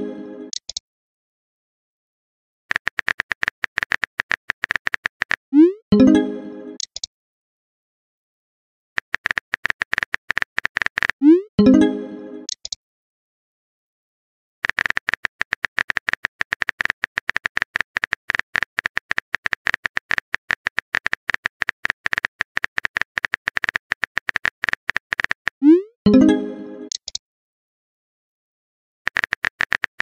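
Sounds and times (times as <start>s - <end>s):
phone keyboard typing clicks: 2.7s - 5.4s, 6.8s - 7.1s, 9.0s - 11.2s, 12.5s - 12.8s, 14.6s - 25.6s, 26.9s - 27.2s, 29.1s - 30.0s.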